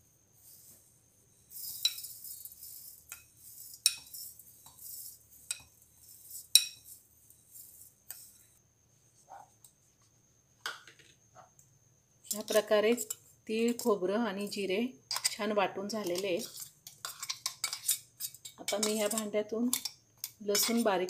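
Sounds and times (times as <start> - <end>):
seeds sliding and hissing: 0.4 - 8.6
metal spoon scraping and clinking: 1.5 - 8.5, 12.3 - 13.9, 15.1 - 15.4, 16.0 - 21.0.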